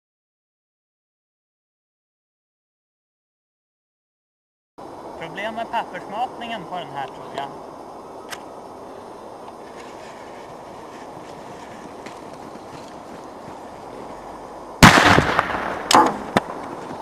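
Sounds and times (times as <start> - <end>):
low background noise: 4.8 - 17.0
crackling: 5.1 - 17.0
explosive bang: 14.8 - 16.6
short sharp crack: 14.8 - 16.7.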